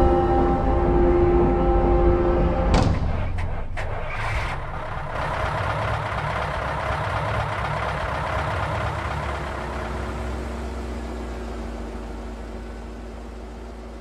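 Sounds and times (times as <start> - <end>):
low rumble: 0.0 - 11.6
sharp knocks: 2.7 - 4.1.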